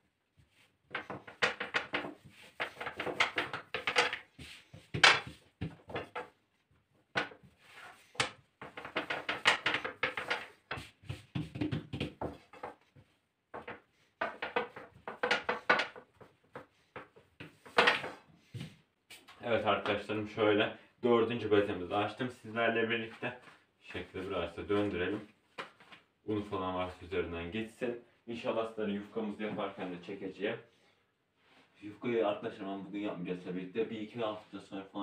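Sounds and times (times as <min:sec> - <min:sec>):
wooden rolling pin knocking on counter: 0:00.9 - 0:06.3, 0:08.2 - 0:12.8, 0:13.6 - 0:18.2.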